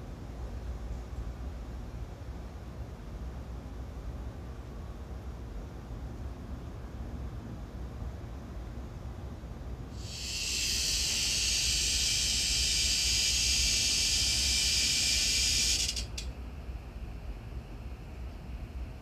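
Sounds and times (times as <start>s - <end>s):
cicada buzzing: 10.0s - 16.3s.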